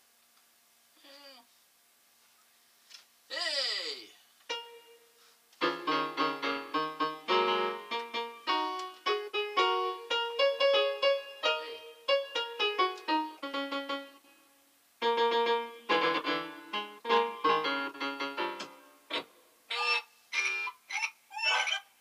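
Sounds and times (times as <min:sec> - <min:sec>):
electronic keyboard piano chords: 0:04.5 - 0:14.4, 0:15.0 - 0:19.3.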